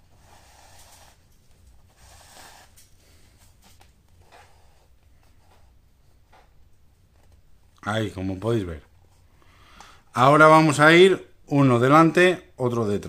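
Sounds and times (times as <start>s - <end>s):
cord rustling through leather: 0.0s - 5.7s.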